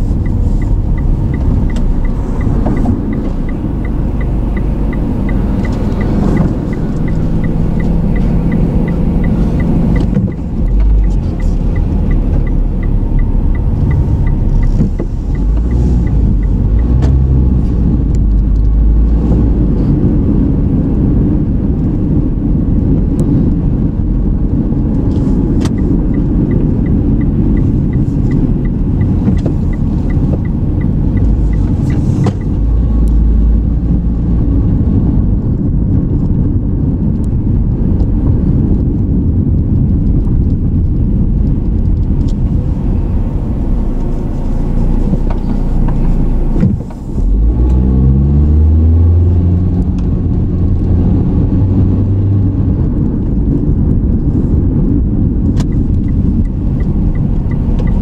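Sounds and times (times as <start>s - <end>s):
car engine and road rumble: 0.0s - 58.0s
turn signal ticking: 0.0s - 58.0s.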